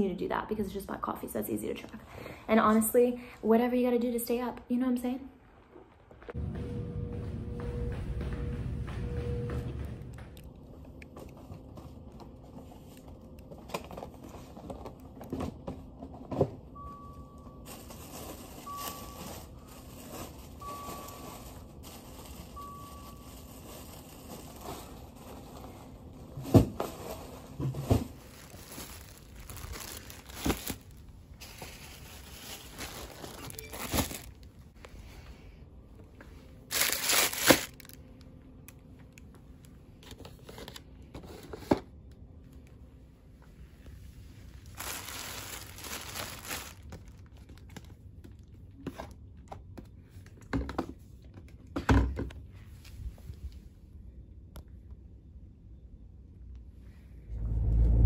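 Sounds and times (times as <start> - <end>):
packaging crinkling: 28.0 - 34.6, 36.7 - 38.0, 44.6 - 48.4.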